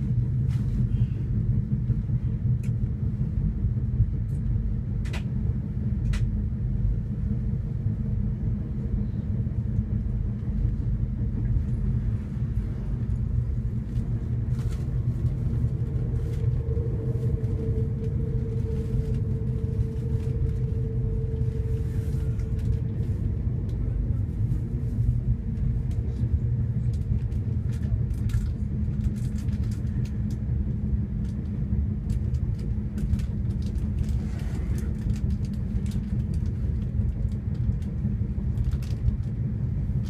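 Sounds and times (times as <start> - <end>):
faint steady hum: 0.0 - 40.0
train wheels rumbling on rail: 0.0 - 40.0.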